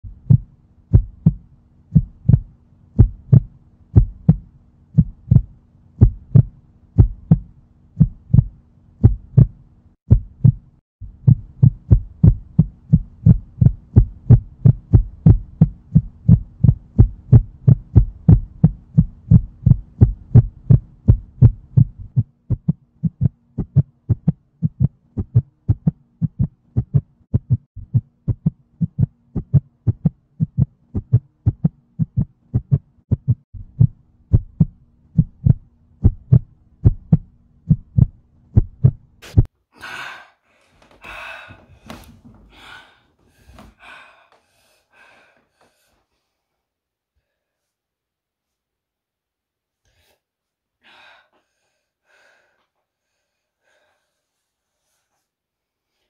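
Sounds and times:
heartbeat thumps: 0.0 - 39.5.

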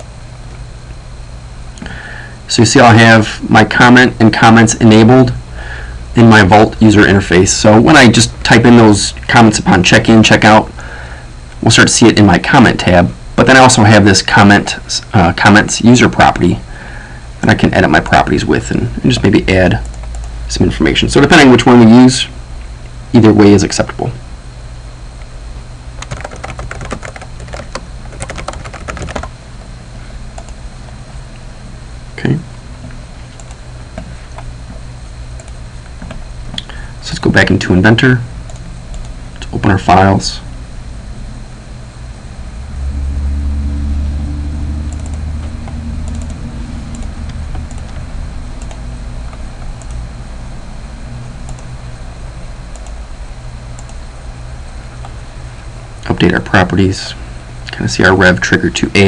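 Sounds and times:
low steady hum: 0.0 - 59.0
keyboard typing: 19.8 - 20.2, 26.0 - 29.3, 44.9 - 48.0
computer mouse clicks: 33.4 - 34.5, 44.9 - 48.0, 48.6 - 50.0, 52.7 - 53.0.

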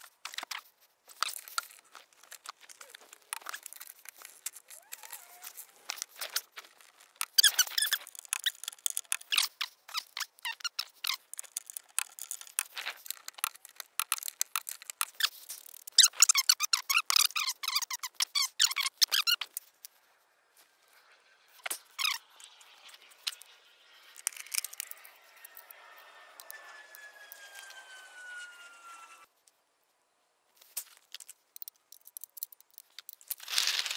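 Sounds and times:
squeaks: 1.2 - 19.6, 21.0 - 29.3.

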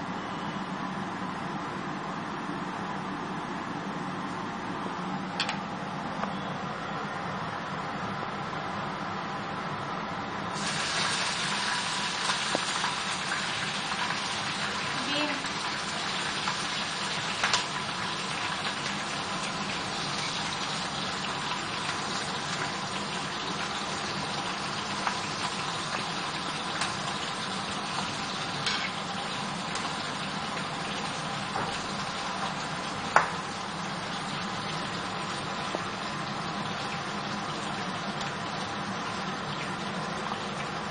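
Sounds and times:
spices sizzling in oil: 10.5 - 40.9.

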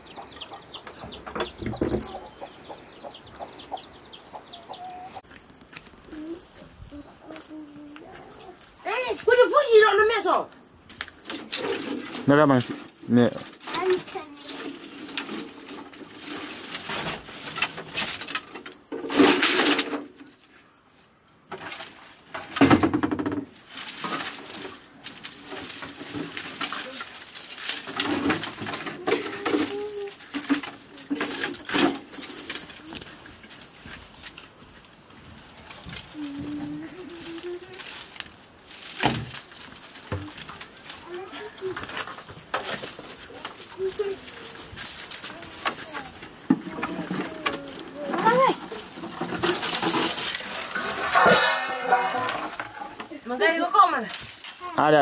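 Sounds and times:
small birds chirping: 0.0 - 50.7
chickens clucking: 0.0 - 54.0
firewood sticks clattering: 10.8 - 20.3, 21.5 - 55.0
loud knocks and handling noises: 21.5 - 24.7.

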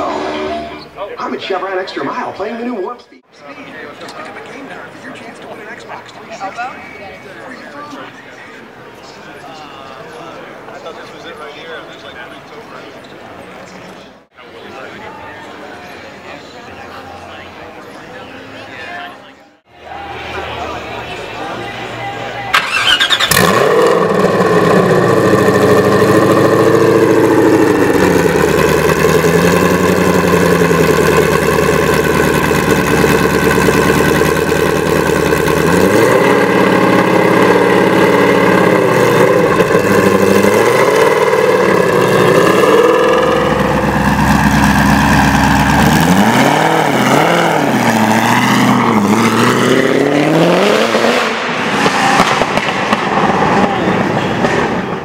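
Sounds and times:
car engine starting and revving: 22.5 - 55.0.

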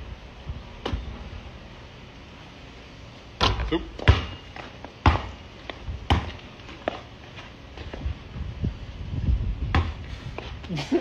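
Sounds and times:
basketball bouncing on pavement: 0.5 - 1.2, 3.3 - 8.2, 9.4 - 10.7.

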